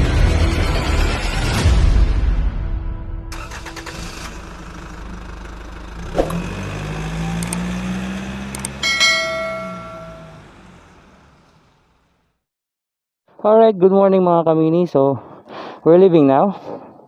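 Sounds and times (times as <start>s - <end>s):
ringing bell chime: 8.8s - 10.5s
sharp hit: 8.8s - 10.5s.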